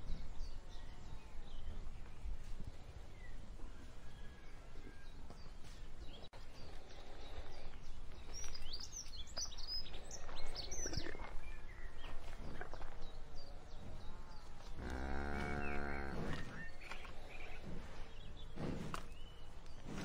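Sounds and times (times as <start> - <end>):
birds chirping: 0.0 - 20.0
low outdoor background: 0.0 - 20.0
cows tearing and chewing grass: 1.9 - 20.0.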